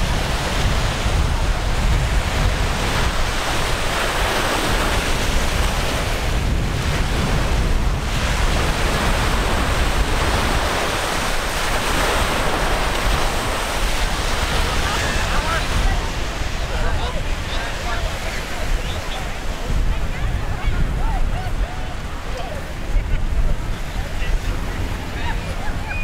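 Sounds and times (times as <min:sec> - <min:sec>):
surf washing in: 0:00.0 - 0:26.0
wind buffeting microphone: 0:00.0 - 0:26.0.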